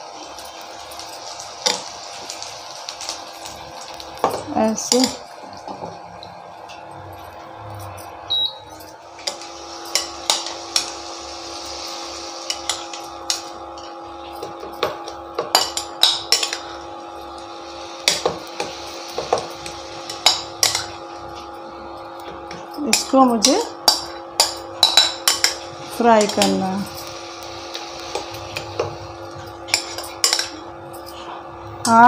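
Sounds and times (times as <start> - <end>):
chicken sizzling in oil: 0.0 - 32.0
steel spoon clinking and scraping: 22.7 - 25.6, 28.1 - 31.3.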